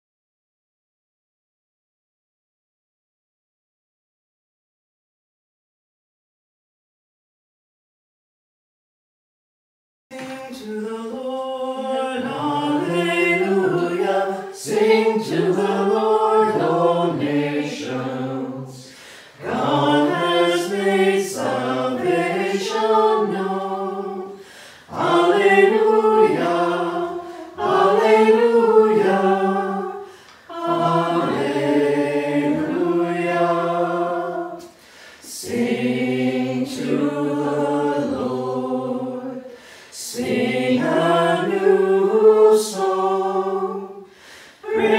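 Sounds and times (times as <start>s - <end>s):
group singing a hymn: 10.1s - 44.9s.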